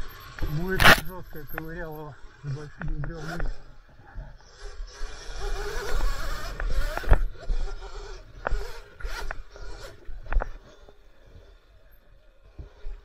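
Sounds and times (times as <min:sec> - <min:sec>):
electric motor whining: 0:00.0 - 0:13.0.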